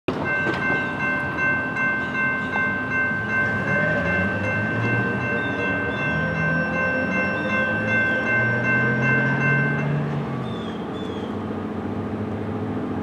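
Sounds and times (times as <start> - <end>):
low rumble of train: 0.1 - 13.0
bird chirps: 4.8 - 8.5, 10.4 - 11.4.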